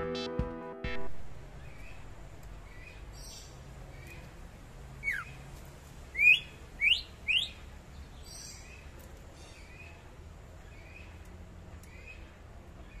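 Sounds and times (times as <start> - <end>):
bird whistling: 5.0 - 5.3, 6.2 - 7.6.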